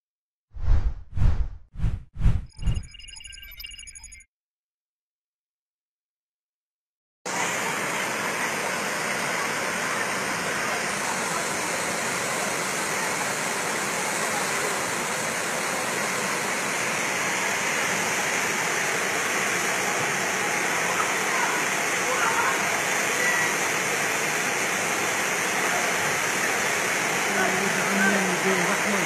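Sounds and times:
floodwater rushing: 0:07.4 - 0:29.0.

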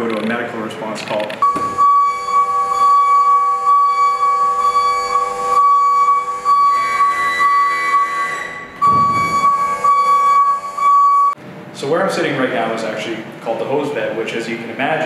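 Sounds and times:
flute-like held note: 0:01.4 - 0:11.4.

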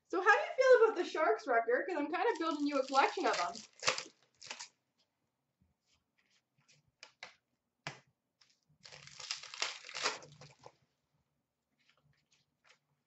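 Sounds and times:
card pack wrapper crinkling: 0:02.3 - 0:04.8, 0:08.8 - 0:10.7.

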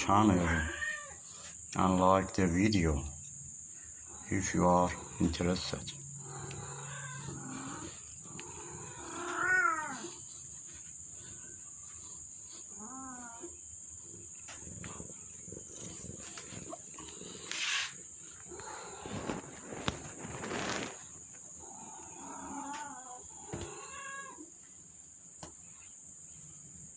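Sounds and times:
cats meowing: 0:00.0 - 0:01.6, 0:04.1 - 0:11.4, 0:12.0 - 0:13.6, 0:14.5 - 0:21.0, 0:21.6 - 0:24.5
high insect drone: 0:00.0 - 0:26.9.

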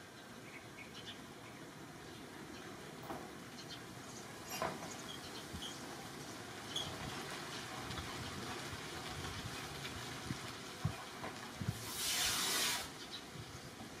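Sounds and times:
outdoor background noise: 0:00.0 - 0:14.0
rush of hissing noise: 0:11.6 - 0:14.0.

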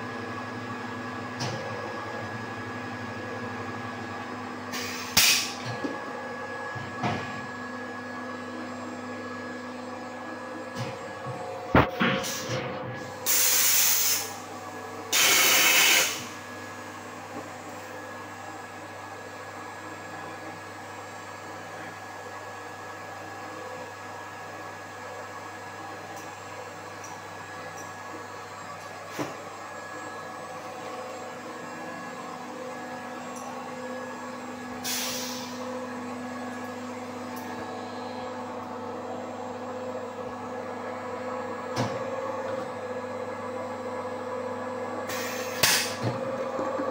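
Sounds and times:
pneumatic air hiss: 0:04.8 - 0:05.6, 0:13.2 - 0:14.3, 0:15.1 - 0:16.3, 0:34.8 - 0:35.6, 0:45.1 - 0:46.0.

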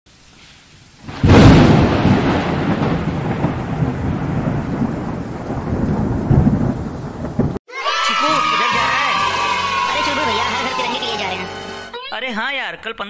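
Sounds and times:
rain-like hiss: 0:00.1 - 0:07.6
thunder crack and rumble: 0:01.0 - 0:07.6.

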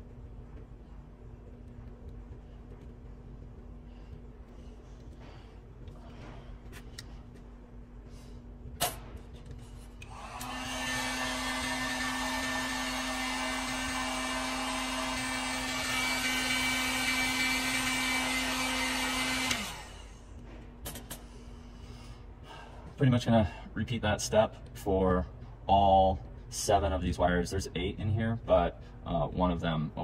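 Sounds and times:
heat gun blowing: 0:10.0 - 0:20.3.

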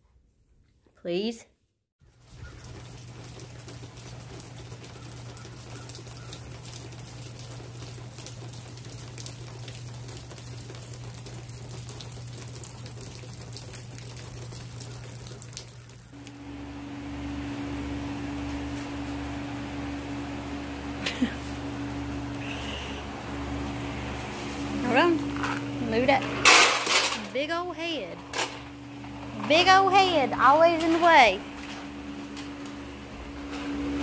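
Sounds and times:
light rain pattering: 0:02.0 - 0:26.2
low electrical hum: 0:02.1 - 0:34.0.

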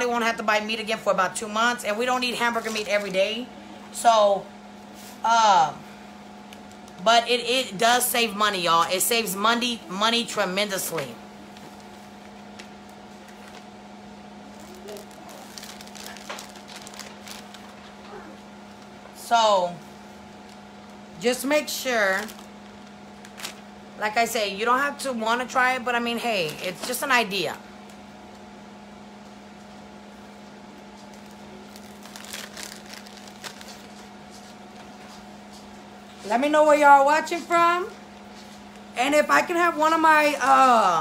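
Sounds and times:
low electrical hum: 0:00.0 - 0:41.0
plastic wrapping crinkling: 0:11.5 - 0:13.8, 0:14.4 - 0:19.0, 0:22.1 - 0:23.8, 0:30.8 - 0:35.2.

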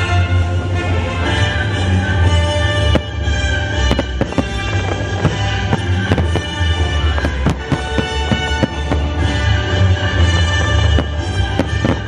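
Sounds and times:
music: 0:00.0 - 0:12.0
fireworks bangs: 0:02.8 - 0:12.0.

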